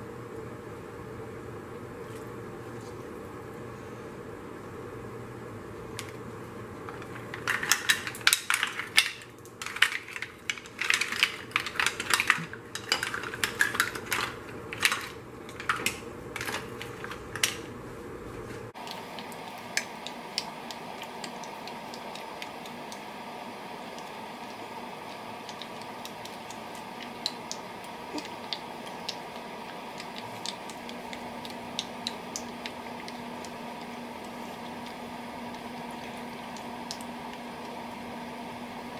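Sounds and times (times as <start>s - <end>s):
mussel shells clattering in a pot: 6.9s - 17.6s.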